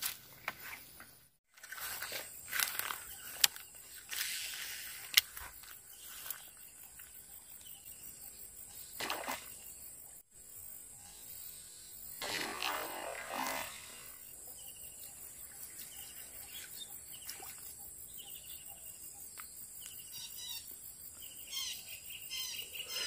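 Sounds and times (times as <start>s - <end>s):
footsteps through wet grass: 1.5s - 7.1s.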